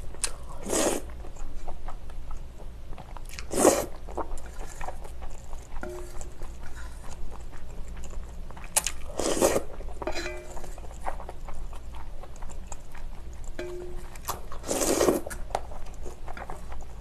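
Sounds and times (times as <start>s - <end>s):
person chewing: 0.1s - 17.0s
person slurping noodles: 3.5s - 3.9s, 9.1s - 9.7s, 14.6s - 15.3s.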